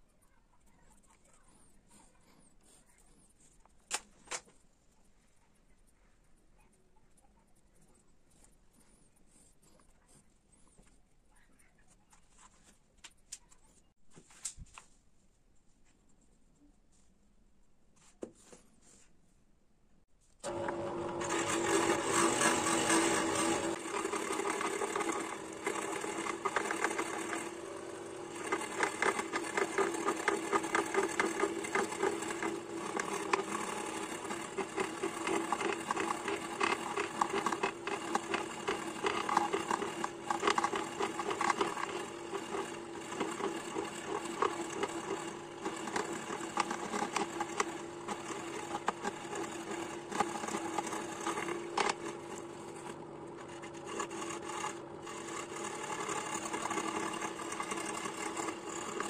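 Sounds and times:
band saw cutting wood: 20.4s - 59.0s.

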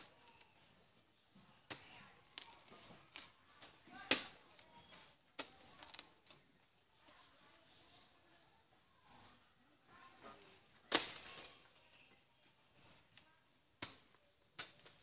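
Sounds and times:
bird chirping: 0.2s - 3.1s, 4.7s - 5.9s, 9.0s - 9.5s, 12.0s - 13.1s
hand tool striking earth: 1.7s - 6.0s, 10.9s - 11.5s, 13.8s - 15.0s.

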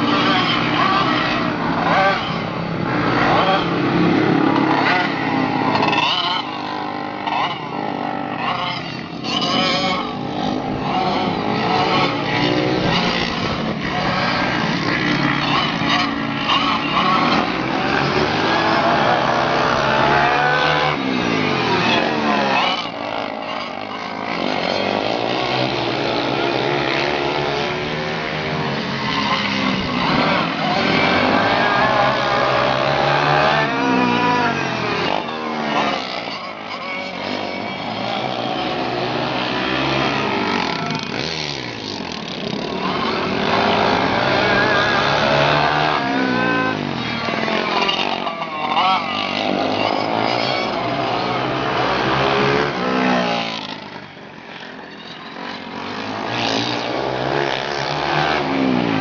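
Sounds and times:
kart engines revving past: 0.0s - 59.0s.

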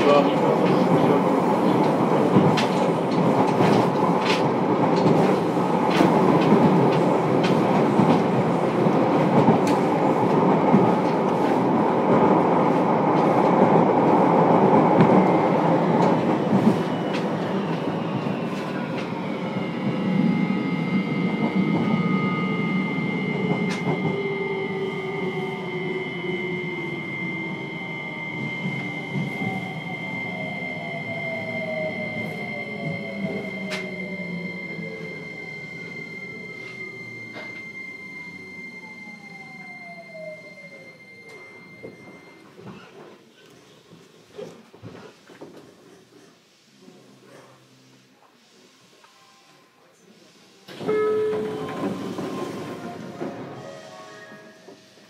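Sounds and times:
train running noise: 0.0s - 43.1s, 44.3s - 55.0s
rail-joint clicks: 1.7s - 8.3s, 32.8s - 34.0s
steady high tone: 16.9s - 42.4s.

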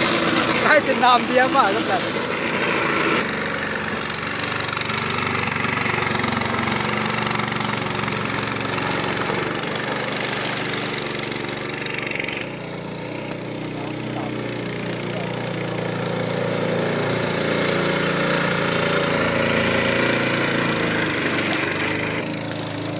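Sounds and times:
motor boat engine running: 0.0s - 22.9s.

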